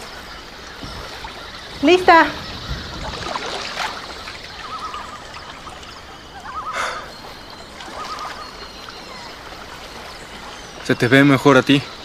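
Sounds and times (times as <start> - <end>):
lake water lapping: 0.0 - 12.0
water splash: 0.8 - 6.4.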